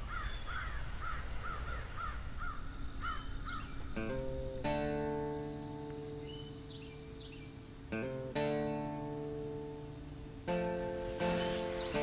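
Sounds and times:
bird calling: 0.0 - 12.0
acoustic guitar music: 3.6 - 12.0.

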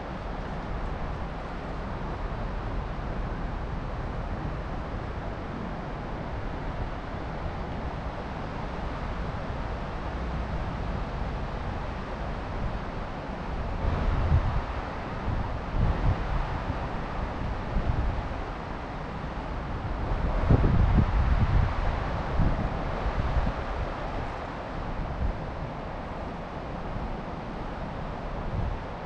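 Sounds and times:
wind buffeting microphone: 9.7 - 29.0.

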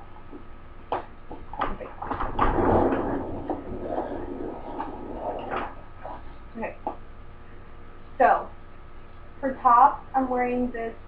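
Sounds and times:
chair scraping and rolling: 1.3 - 6.5.

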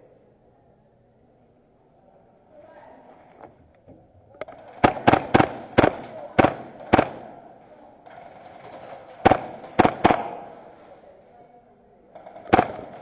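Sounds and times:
airsoft gun shots echoing: 4.6 - 7.5, 9.2 - 10.9, 12.2 - 13.0.

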